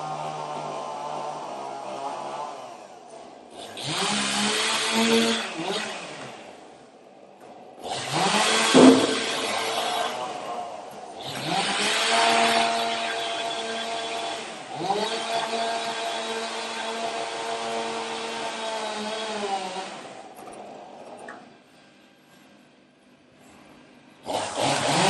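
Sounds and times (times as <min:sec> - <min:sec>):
chainsaw cutting log: 0:03.5 - 0:06.6, 0:07.8 - 0:10.5, 0:11.2 - 0:20.3, 0:24.2 - 0:25.0.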